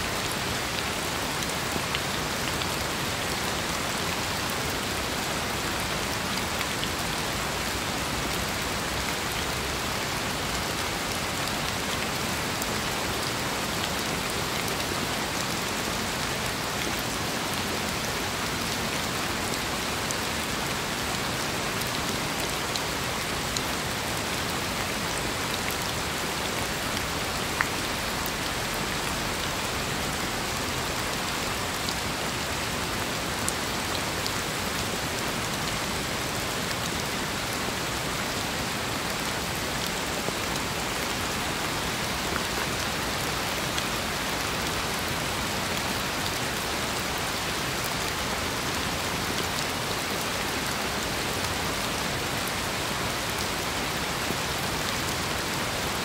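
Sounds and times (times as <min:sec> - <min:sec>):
steady rain hiss: 0:00.0 - 0:56.0.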